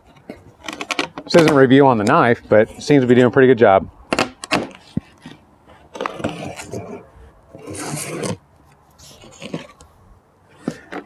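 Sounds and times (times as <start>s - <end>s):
knife cutting tape and cardboard: 4.1s - 9.9s.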